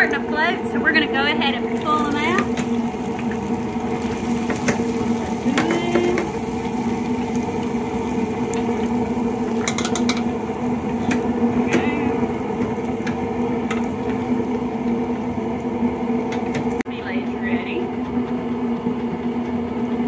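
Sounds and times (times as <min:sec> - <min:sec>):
steady low hum: 0:00.0 - 0:18.7
fryer baskets clinking on metal: 0:03.4 - 0:07.1, 0:08.6 - 0:14.2.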